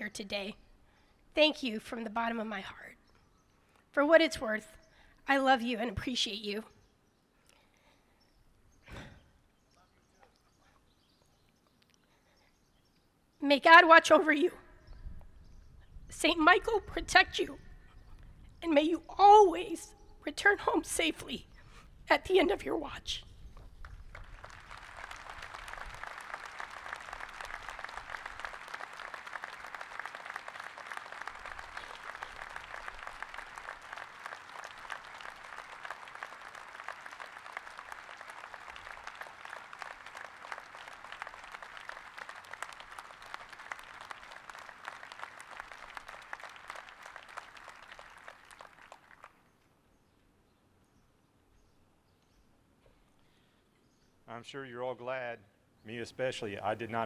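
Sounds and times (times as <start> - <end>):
crowd applauding: 23.8 - 49.4.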